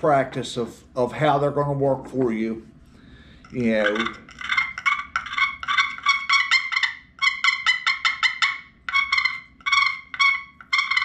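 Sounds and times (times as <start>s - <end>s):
turkey call yelping: 3.9s - 11.0s.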